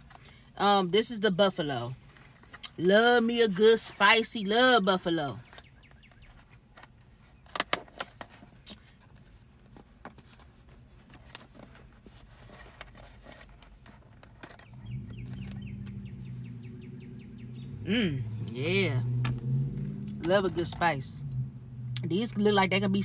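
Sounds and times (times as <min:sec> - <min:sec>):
low engine hum: 0:08.2 - 0:23.0.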